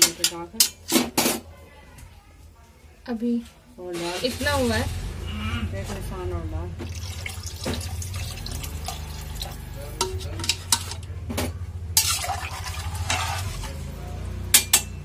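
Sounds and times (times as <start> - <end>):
spoon scraping a metal pot: 9.4 - 11.1, 12.0 - 13.9.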